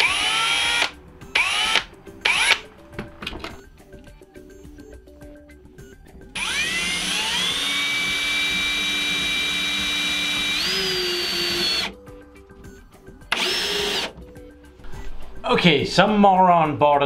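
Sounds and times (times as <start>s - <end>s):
drill whining: 0.0s - 2.7s, 6.4s - 12.0s, 13.3s - 14.2s.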